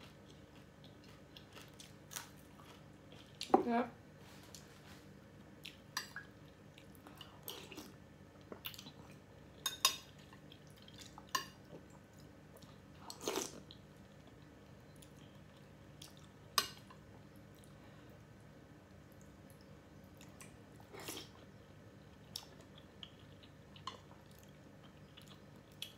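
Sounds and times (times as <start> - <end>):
chewing: 0.0 - 3.5, 19.1 - 25.9.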